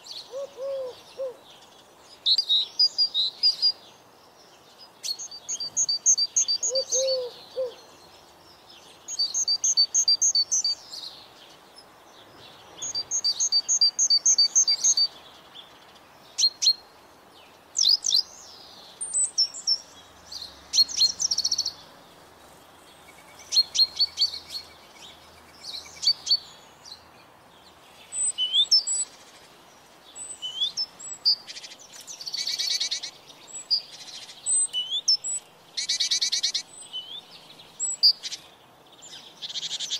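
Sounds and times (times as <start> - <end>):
other bird calls: 0.0 - 1.4, 5.1 - 7.9
songbirds chirping: 0.0 - 39.9.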